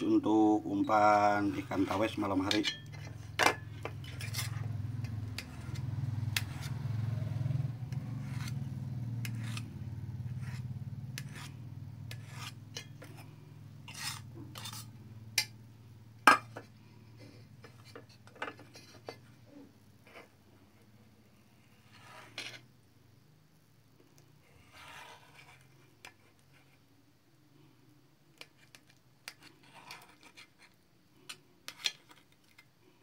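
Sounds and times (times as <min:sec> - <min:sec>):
knife scraping on plate: 0:00.9 - 0:04.7, 0:05.3 - 0:06.8, 0:08.2 - 0:08.6, 0:09.2 - 0:15.5, 0:24.4 - 0:26.2, 0:28.4 - 0:32.3.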